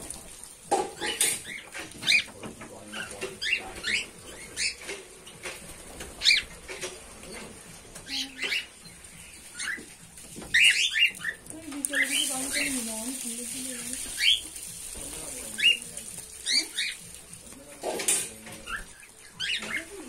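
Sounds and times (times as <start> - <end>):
cockatiels chirping: 0.7 - 12.8, 14.0 - 14.6, 15.4 - 17.1, 18.6 - 20.0.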